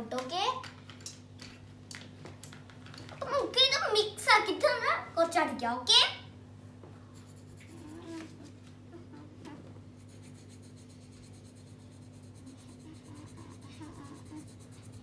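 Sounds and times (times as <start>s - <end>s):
felt-tip pen scribbling on paper: 10.0s - 15.0s.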